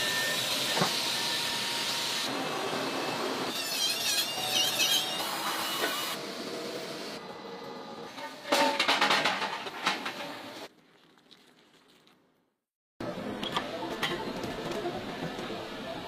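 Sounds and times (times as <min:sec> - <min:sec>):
high squeal of hand tool on metal: 0:03.5 - 0:06.2.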